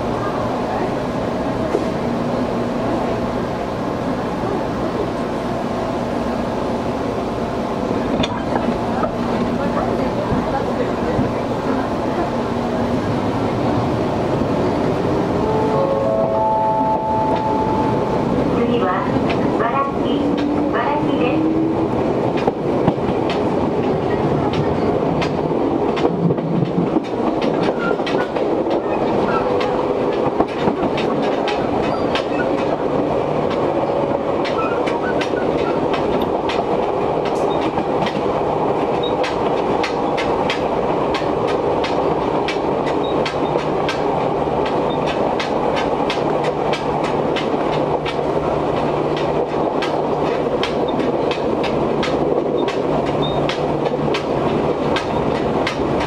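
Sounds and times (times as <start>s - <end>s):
train wheels rumbling on rails: 0.0s - 56.0s
sharp clacks and rattles: 39.2s - 56.0s.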